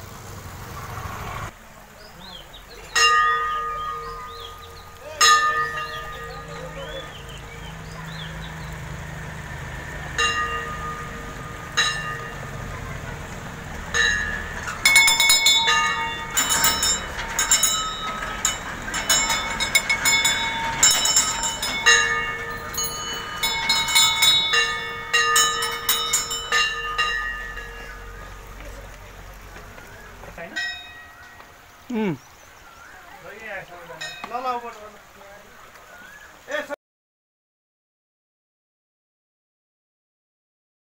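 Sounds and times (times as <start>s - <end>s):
metal bells ringing: 2.8s - 32.2s, 33.8s - 34.9s.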